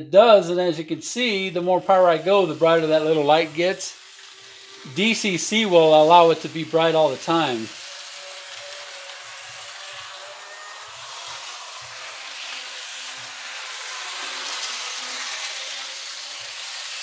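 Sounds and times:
model train motor whirring: 0:01.1 - 0:17.0
train wheels on rails: 0:03.4 - 0:17.0.

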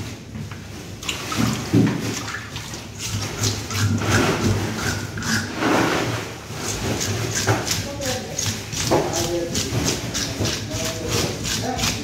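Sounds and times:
fish scaler scraping fish skin: 0:03.0 - 0:12.0.

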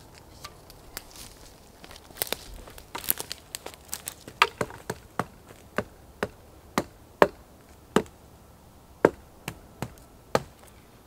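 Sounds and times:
axe chopping wood: 0:02.7 - 0:08.2, 0:09.0 - 0:10.7.

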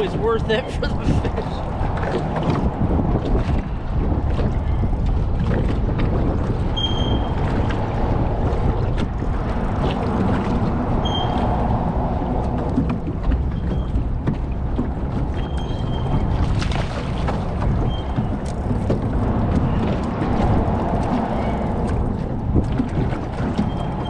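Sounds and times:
water around boat: 0:00.0 - 0:24.0
wind buffeting microphone: 0:00.0 - 0:24.0.

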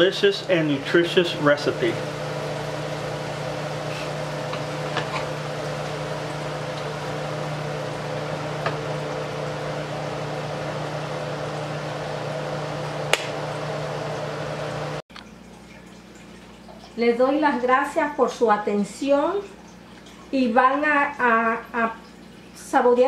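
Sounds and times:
fan humming and hissing: 0:00.0 - 0:15.0.

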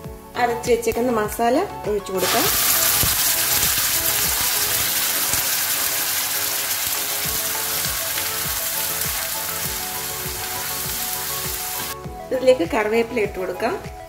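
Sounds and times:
paste sizzling in hot oil: 0:02.2 - 0:12.0.

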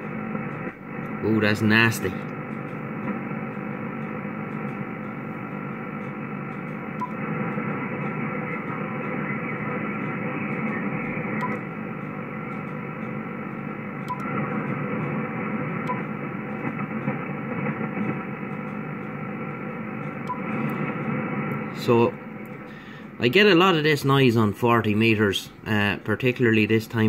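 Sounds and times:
radio interference rasping noise: 0:00.0 - 0:27.0
faint regular clicks: 0:02.2 - 0:21.6.

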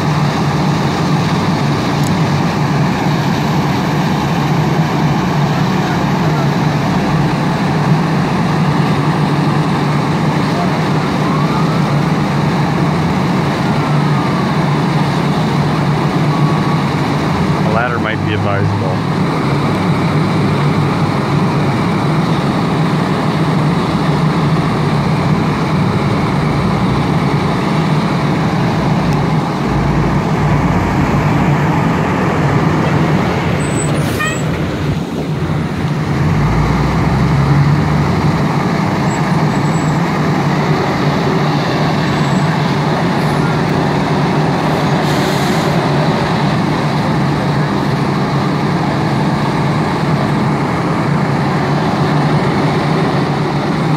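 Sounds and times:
diesel engine running: 0:00.0 - 0:53.9.

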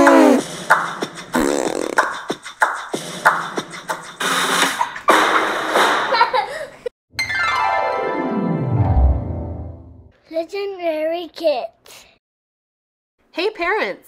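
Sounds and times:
beatbox vocal percussion: 0:00.0 - 0:05.3.

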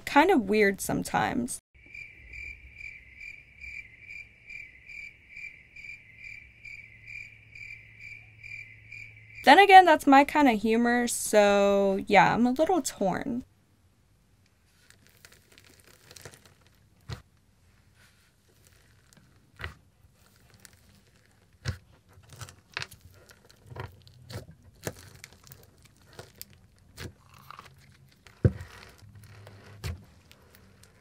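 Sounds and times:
slime squished by hand: 0:14.7 - 0:17.3, 0:18.3 - 0:31.0.

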